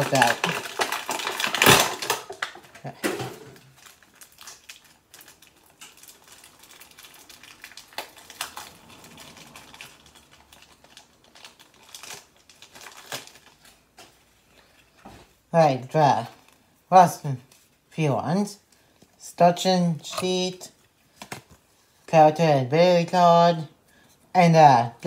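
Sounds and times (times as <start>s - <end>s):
packaging crinkling: 0.0s - 15.4s.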